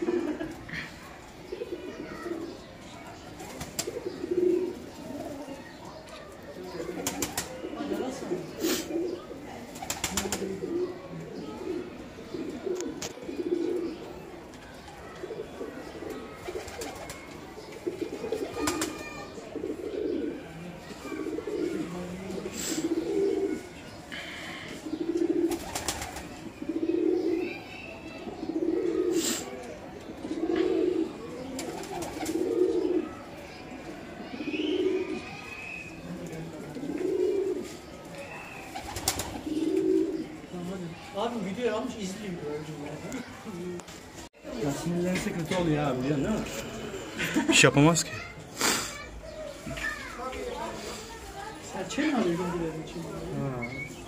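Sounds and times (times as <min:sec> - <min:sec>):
pigeons cooing: 0:00.0 - 0:41.1, 0:45.4 - 0:47.5.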